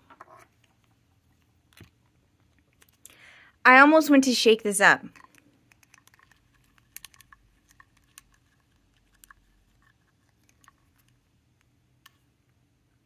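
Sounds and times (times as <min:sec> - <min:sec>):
small plastic clicks: 0:05.1 - 0:12.6.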